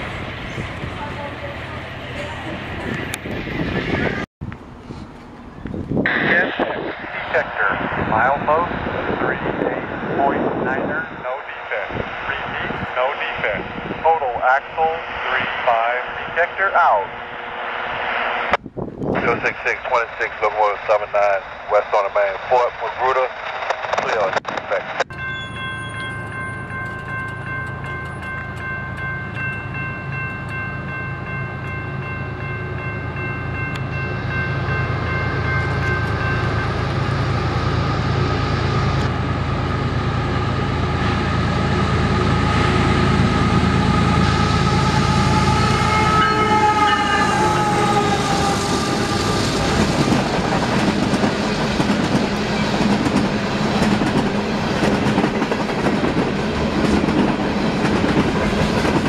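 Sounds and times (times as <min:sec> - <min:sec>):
diesel locomotives passing: 0:00.0 - 0:59.0.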